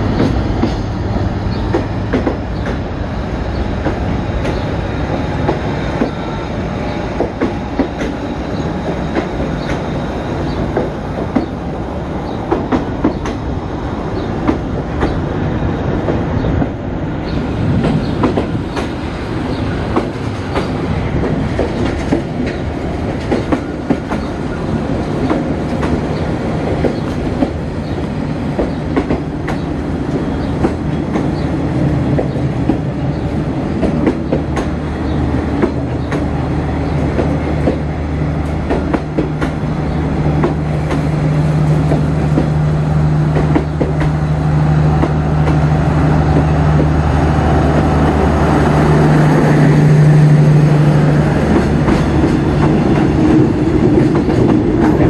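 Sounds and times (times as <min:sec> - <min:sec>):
train wheels clicking over rail joints: 0:00.0 - 0:02.9, 0:03.6 - 0:13.6, 0:14.2 - 0:15.4, 0:16.0 - 0:55.0
train rolling rumble: 0:00.0 - 0:55.0.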